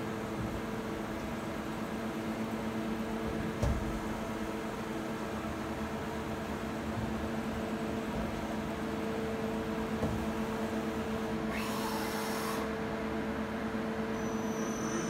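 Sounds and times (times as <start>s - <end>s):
hiss: 11.5s - 12.7s.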